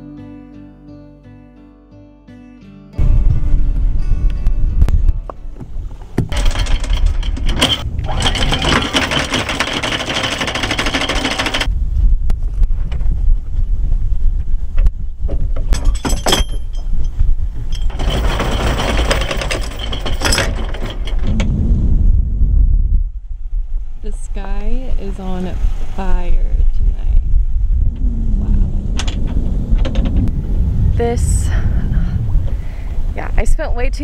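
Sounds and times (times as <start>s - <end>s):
low rumble: 3.0s - 9.3s, 11.0s - 34.0s
anchor chain rattling: 6.2s - 11.7s, 15.7s - 21.4s.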